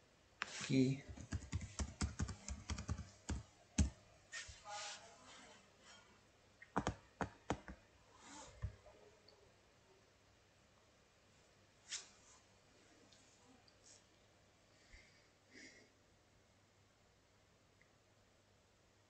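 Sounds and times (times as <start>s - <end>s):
typing on computer keyboard: 1.0s - 4.0s, 6.7s - 7.8s.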